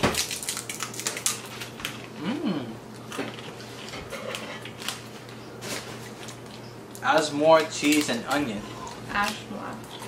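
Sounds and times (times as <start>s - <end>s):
people crunching crisps: 0.0s - 6.5s, 7.4s - 10.0s
voice humming: 2.2s - 2.8s.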